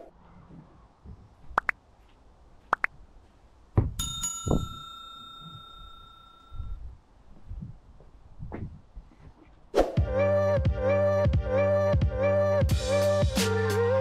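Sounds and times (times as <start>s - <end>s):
bell-like ding: 4.0s - 6.8s.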